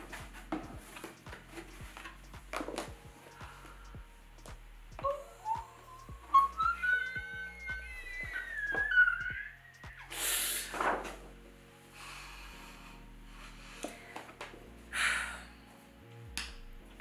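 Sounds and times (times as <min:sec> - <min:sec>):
woman breathing: 0:03.2 - 0:04.2, 0:10.1 - 0:10.8, 0:11.8 - 0:15.9.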